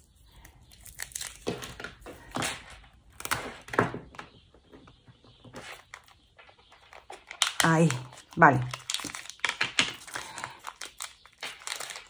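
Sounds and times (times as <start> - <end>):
scraping rustling of package wrapping: 5.6 - 12.0.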